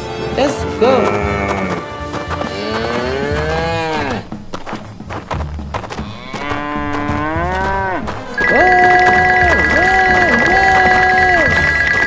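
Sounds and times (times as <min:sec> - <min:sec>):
cow mooing: 0:01.0 - 0:04.3, 0:06.0 - 0:11.3
steady high tone: 0:08.4 - 0:12.0.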